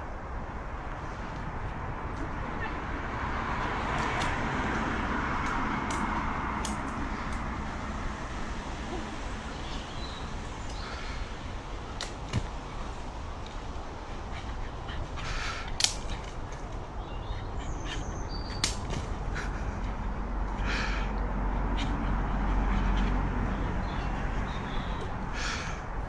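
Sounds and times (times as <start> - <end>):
leaves rustling: 0.0 - 21.1
twigs snapping: 5.3 - 7.5, 11.9 - 12.7, 15.6 - 16.9, 18.5 - 19.2.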